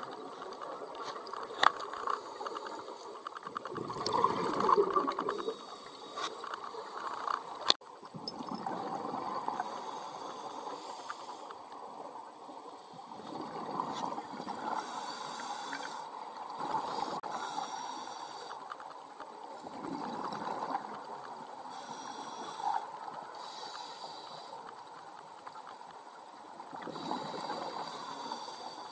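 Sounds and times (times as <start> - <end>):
exhaled air bubbling: 3.6 - 6.0
regulator inhalation hiss: 5.3 - 6.9, 9.6 - 11.6, 14.7 - 18.8, 21.6 - 24.8, 26.9 - 28.9.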